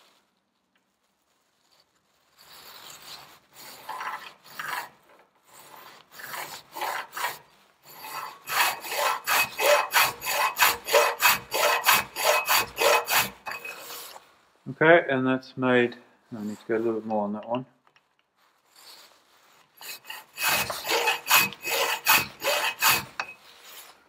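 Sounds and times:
metal file rasping: 3.2 - 14.2, 19.4 - 24.0.

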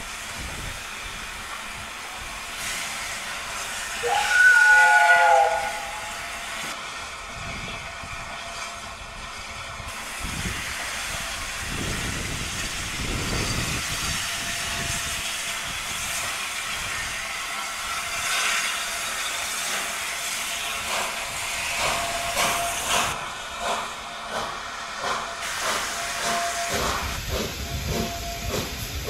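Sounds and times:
steam locomotive hissing: 0.0 - 29.0.

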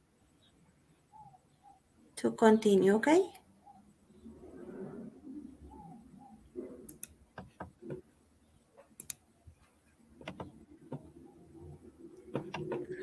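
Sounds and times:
keyboard typing clicks: 6.9 - 7.7, 9.0 - 9.2, 10.2 - 11.1, 12.3 - 13.0.

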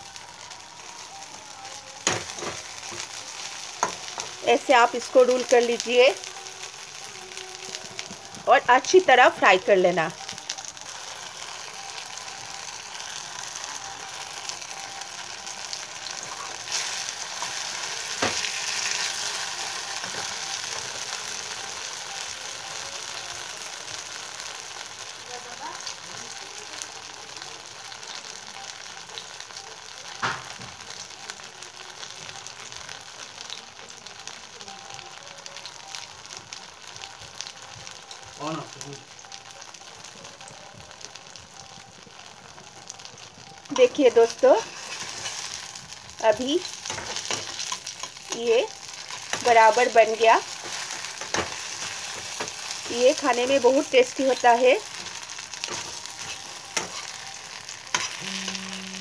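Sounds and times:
oil sizzling: 0.0 - 59.0.

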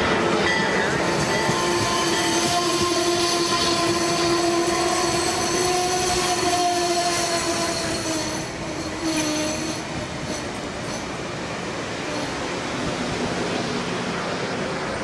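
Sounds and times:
train wheels rushing on rail: 0.0 - 15.0.

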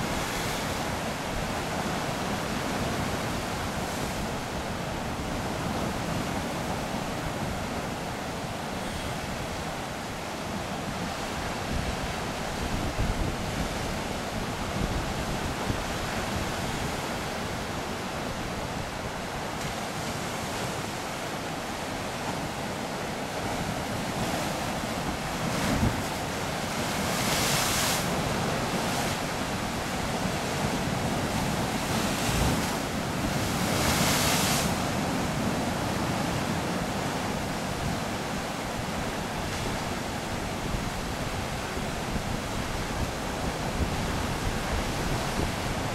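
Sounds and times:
wind on microphone: 10.8 - 19.3, 23.5 - 45.9.

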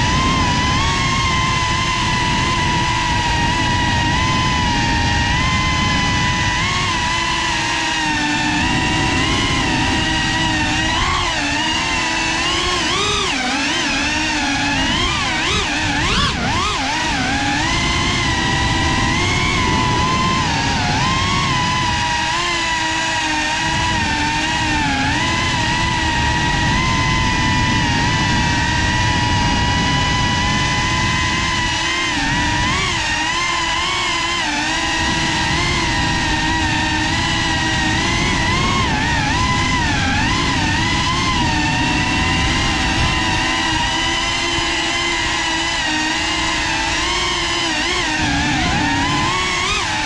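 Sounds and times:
drone propellers whining: 0.0 - 50.0
rough rushing noise: 0.0 - 50.0.

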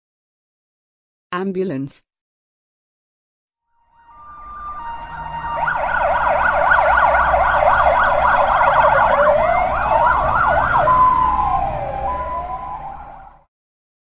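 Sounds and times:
ambulance siren: 3.7 - 13.5.

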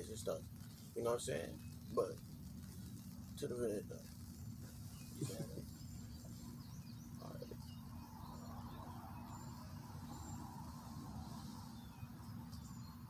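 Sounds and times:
insects: 0.0 - 13.0
low steady hum: 0.0 - 13.0
bird chirps: 4.0 - 13.0.

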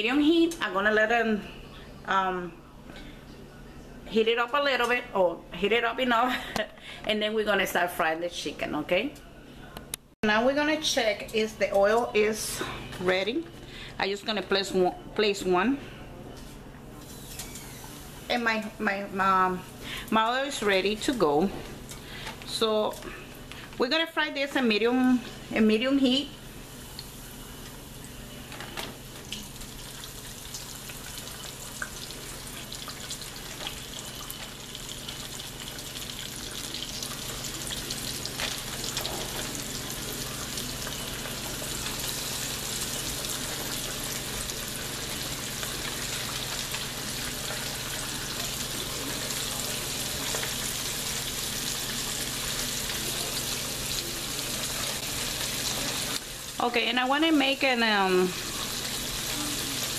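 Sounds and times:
chicken deep-frying in oil: 26.1 - 59.9.

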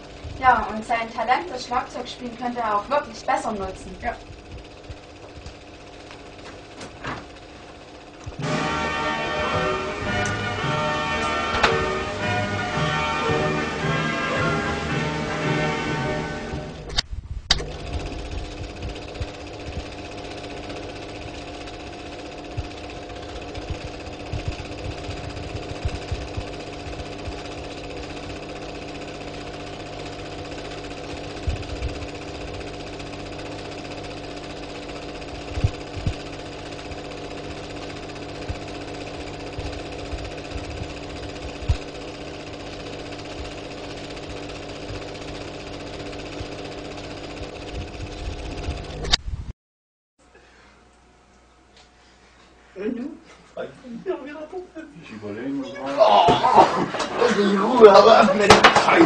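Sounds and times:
droning hum of held tones: 8.2 - 17.0, 17.9 - 34.0, 34.6 - 42.5.

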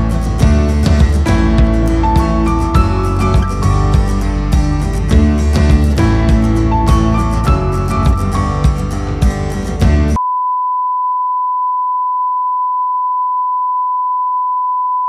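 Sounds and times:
plucked guitar music: 0.0 - 10.2.

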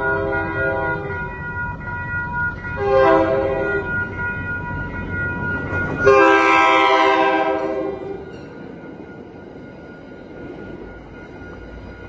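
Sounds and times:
train horn blasts: 0.0 - 1.1, 2.8 - 3.9, 6.0 - 8.2.

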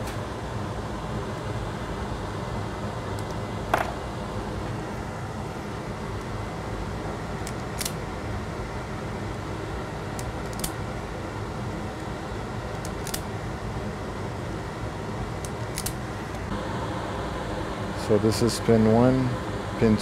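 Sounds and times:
steady background hum: 0.0 - 20.0
wire stripper clicking: 7.4 - 8.0, 10.2 - 10.8, 12.7 - 13.3, 15.4 - 16.0.

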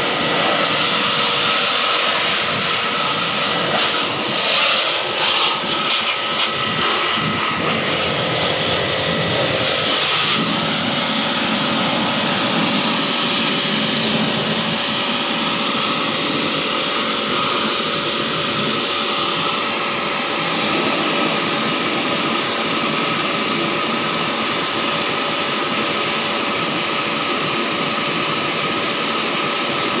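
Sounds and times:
pressure washer spray hiss: 0.0 - 16.5
pressure washer motor hum: 0.0 - 30.0.

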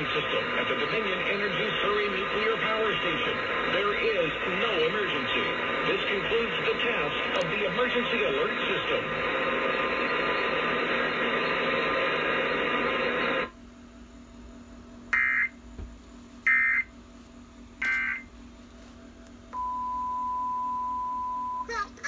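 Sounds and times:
emergency alert audio on television: 0.0 - 13.5, 15.1 - 15.6, 16.5 - 16.9, 17.8 - 18.3
steady single tone: 19.5 - 21.7.

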